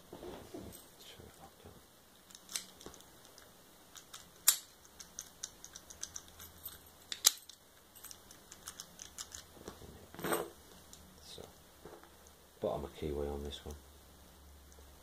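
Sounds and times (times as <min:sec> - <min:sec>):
lock picks clicking in a lock: 0:04.0 - 0:09.5.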